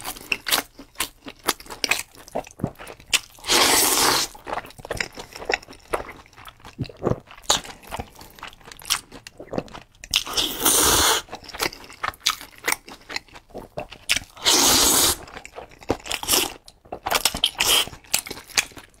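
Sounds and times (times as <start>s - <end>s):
wet chewing and lip-smacking: 0.0s - 19.0s
slurping noodles: 3.4s - 4.4s, 10.3s - 11.3s, 14.3s - 15.3s.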